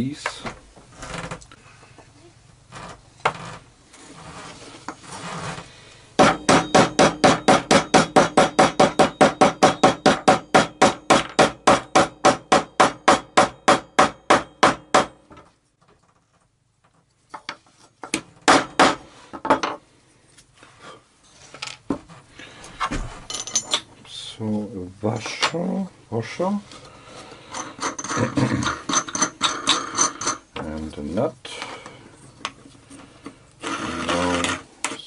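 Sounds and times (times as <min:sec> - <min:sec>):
hammer tapping metal: 0:06.2 - 0:15.2
hardware clinking: 0:23.3 - 0:23.9, 0:27.4 - 0:30.7.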